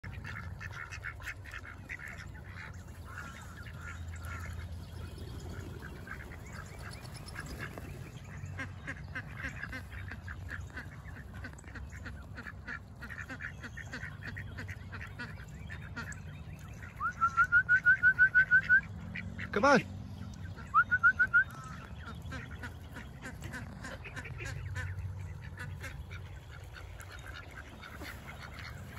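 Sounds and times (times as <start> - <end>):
ducks quacking softly: 0.0 - 28.9
geese honking: 16.8 - 28.9.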